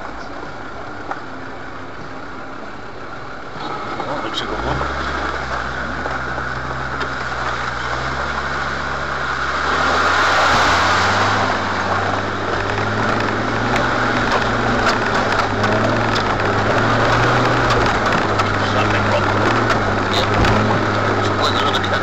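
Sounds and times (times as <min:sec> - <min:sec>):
off-road vehicle engine revving: 0:00.0 - 0:22.0
tyres rumbling on loose stones: 0:09.7 - 0:22.0
small knocks and rattles: 0:12.2 - 0:21.0.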